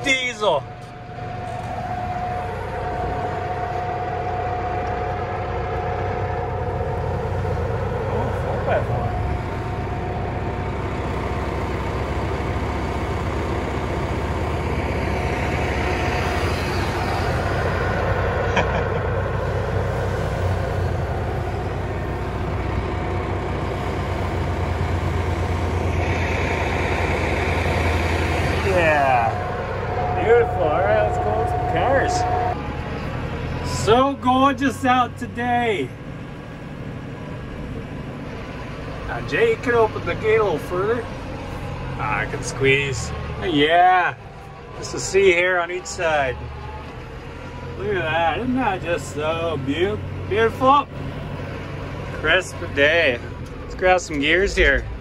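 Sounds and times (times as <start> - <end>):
high steady whine: 0.0 - 35.8
diesel engine running: 0.0 - 55.0
tyres churning through snow: 0.0 - 55.0.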